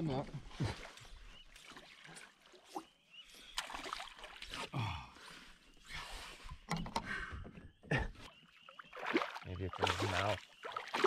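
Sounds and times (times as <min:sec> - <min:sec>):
water splashing against canoe: 0:08.8 - 0:11.0.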